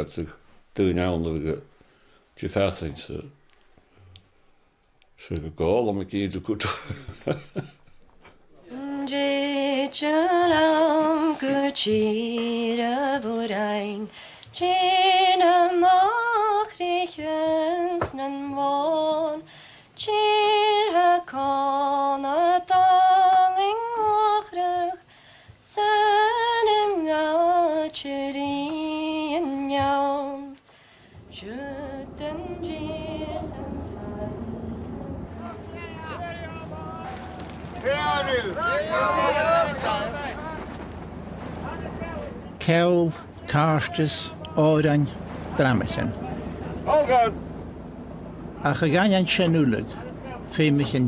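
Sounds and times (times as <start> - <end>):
woman singing unaccompanied: 8.7 - 37.8.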